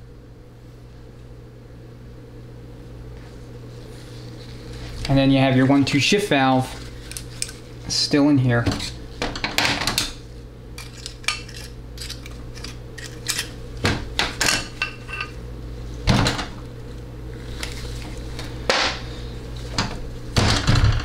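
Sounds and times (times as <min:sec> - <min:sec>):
tools clinking and scraping metal: 0:10.8 - 0:13.6.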